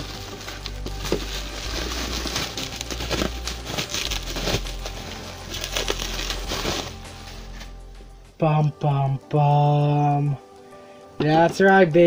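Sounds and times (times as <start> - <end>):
packing material crinkling: 0.0 - 7.8.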